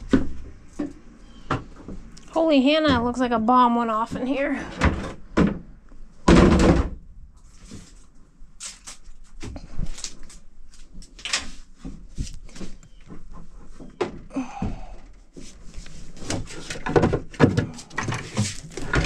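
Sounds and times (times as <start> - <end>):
plastic buckets knocking and clattering: 2.7 - 7.0, 16.1 - 19.0.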